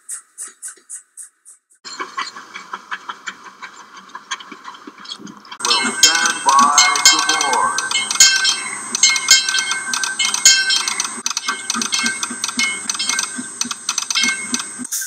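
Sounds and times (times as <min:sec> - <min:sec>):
locomotive bell clanging: 0:05.6 - 0:14.8.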